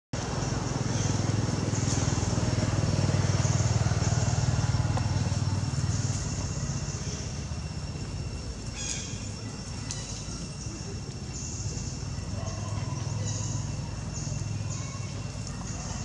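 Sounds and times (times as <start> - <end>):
vehicle engine passing: 0.2 - 8.6.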